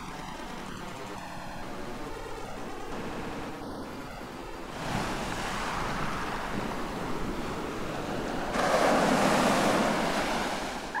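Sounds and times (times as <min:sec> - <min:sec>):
sea water lapping: 0:04.8 - 0:11.0.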